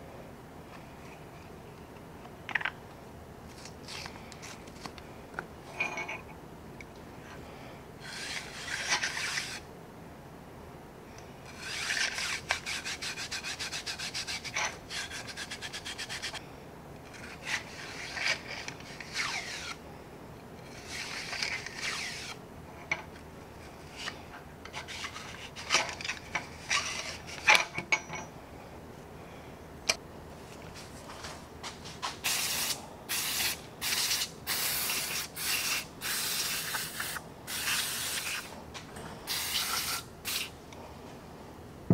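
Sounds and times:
brush scrubbing metal: 0:11.5 - 0:16.4
aerosol spray hissing: 0:32.2 - 0:38.5, 0:39.3 - 0:40.5.

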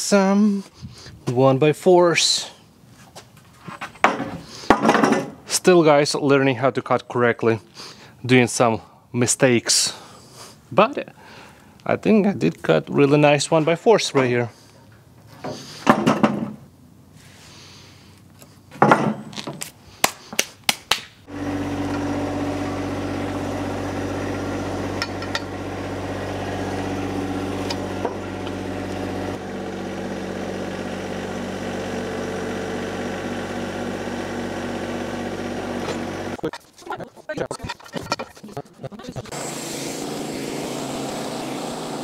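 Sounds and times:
wooden boards clunking: 0:03.8 - 0:05.4, 0:15.4 - 0:16.6, 0:18.7 - 0:19.3
diesel tractor engine running: 0:21.3 - 0:42.0.

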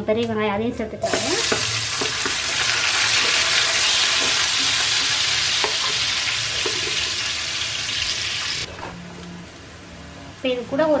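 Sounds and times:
onions sizzling in oil: 0:01.0 - 0:08.7.

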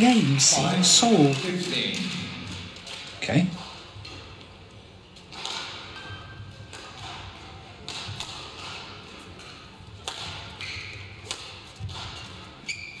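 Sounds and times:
indoor arena murmur: 0:00.0 - 0:13.0
badminton racket hits: 0:05.2 - 0:13.0.

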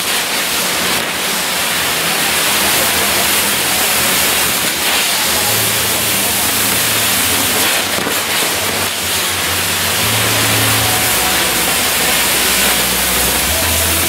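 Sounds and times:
firework crackles: 0:00.0 - 0:14.0
firework wheel hissing: 0:00.0 - 0:14.0.

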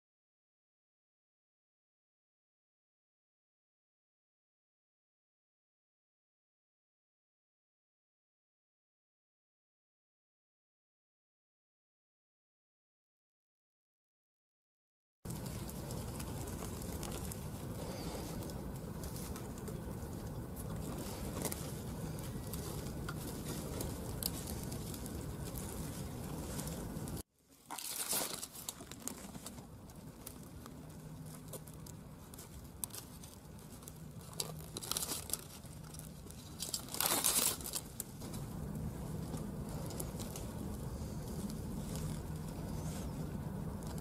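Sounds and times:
steady background noise: 0:15.3 - 0:27.2, 0:27.8 - 0:44.0
dry grass rustling and crackling: 0:15.3 - 0:44.0.

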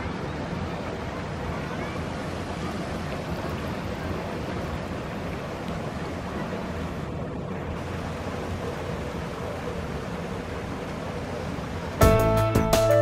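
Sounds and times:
water rushing in pool: 0:00.0 - 0:12.8.

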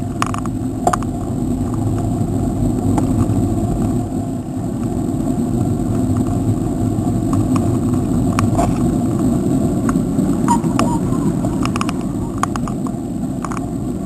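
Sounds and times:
road noise from bicycle: 0:00.0 - 0:14.0
wind on microphone: 0:00.0 - 0:14.0.

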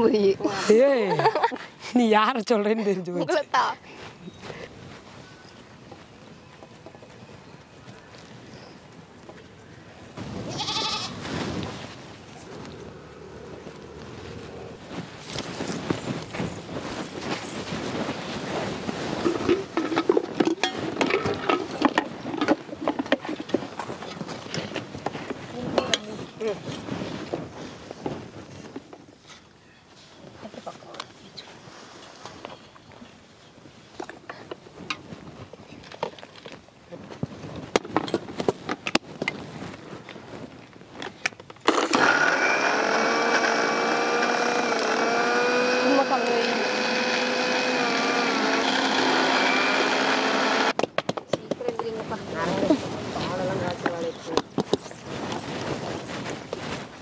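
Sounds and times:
rustling movement: 0:01.1 - 0:50.8, 0:51.4 - 0:57.0
mixer grinders whining: 0:41.7 - 0:50.8.

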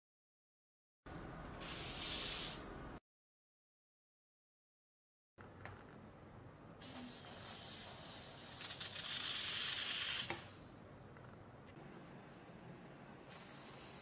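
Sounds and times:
gas hissing: 0:01.6 - 0:02.7, 0:06.8 - 0:10.6, 0:13.3 - 0:14.0.

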